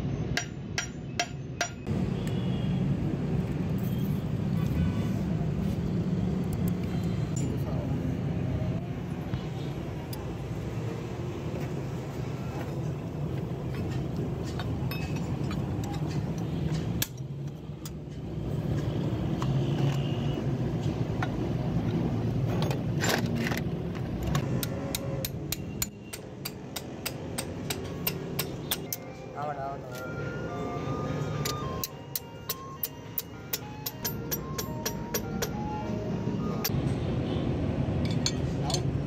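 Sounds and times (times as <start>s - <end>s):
hammer tapping on metal: 0.4s - 1.9s, 24.4s - 29.1s, 31.4s - 35.6s
metal parts clinking: 13.9s - 18.1s, 21.2s - 25.6s.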